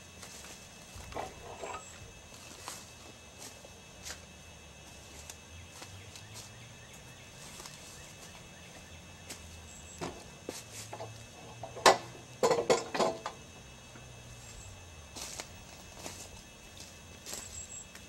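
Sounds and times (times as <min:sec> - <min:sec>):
footsteps on dry leaves: 0:00.0 - 0:11.3, 0:14.3 - 0:18.0
metal frame clanking and rattling: 0:10.9 - 0:13.4.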